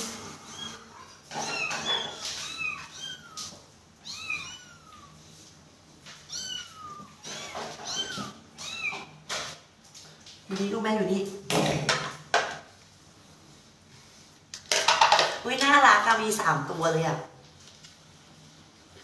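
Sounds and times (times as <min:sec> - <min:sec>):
kitten meowing: 0:00.5 - 0:05.2, 0:06.3 - 0:09.1.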